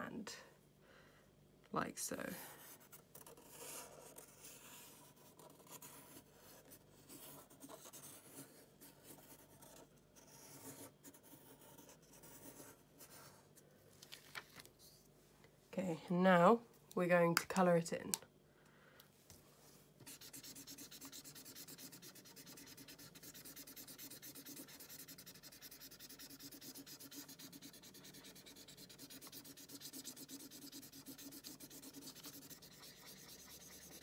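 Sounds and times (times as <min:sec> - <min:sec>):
marker scribbling on paper: 0:20.0 - 0:34.0.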